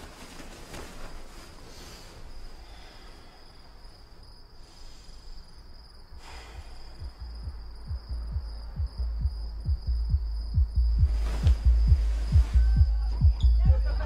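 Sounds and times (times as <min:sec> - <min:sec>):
crickets trilling: 0:00.0 - 0:14.0
muffled thumping bass beat: 0:06.6 - 0:14.0.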